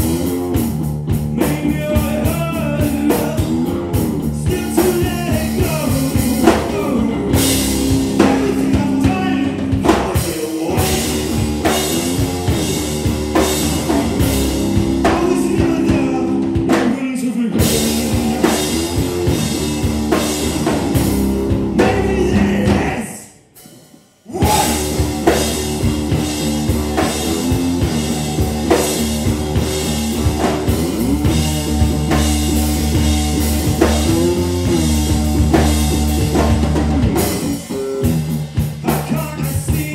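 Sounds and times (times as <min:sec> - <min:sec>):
electric guitar: 0:00.0 - 0:23.2, 0:24.3 - 0:39.9
drum kit: 0:00.0 - 0:39.9
person singing: 0:01.3 - 0:12.4, 0:15.0 - 0:19.6, 0:21.7 - 0:23.4, 0:24.3 - 0:25.6, 0:37.3 - 0:39.9.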